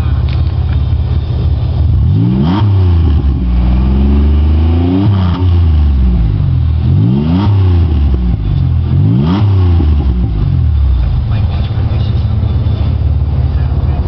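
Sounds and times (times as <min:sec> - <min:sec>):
car engine revving: 0:00.0 - 0:14.0.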